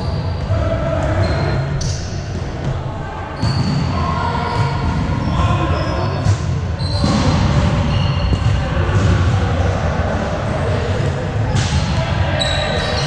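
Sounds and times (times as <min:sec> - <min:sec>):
sneakers squeaking on hardwood: 0:03.4 - 0:06.2.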